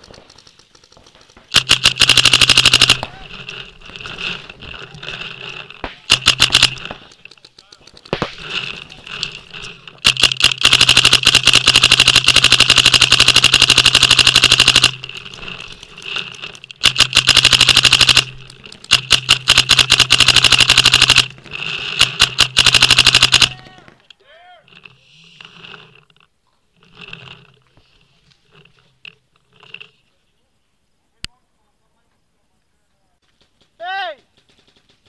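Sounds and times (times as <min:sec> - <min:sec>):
paintball marker firing rapid shots: 0:00.0 - 0:04.6, 0:05.8 - 0:09.3, 0:09.9 - 0:15.8, 0:16.4 - 0:24.0, 0:33.2 - 0:35.0.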